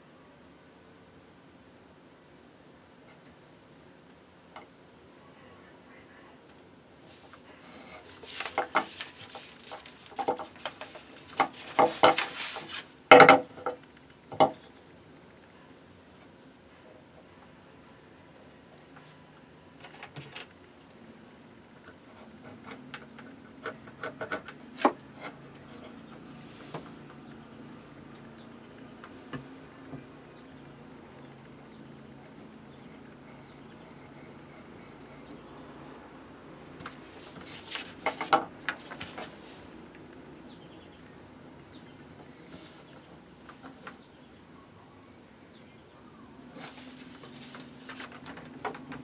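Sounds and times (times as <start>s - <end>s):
paper rustling: 7.1s - 13.0s, 36.8s - 39.8s, 46.5s - 49.0s
pencil scratching on paper: 32.2s - 35.5s.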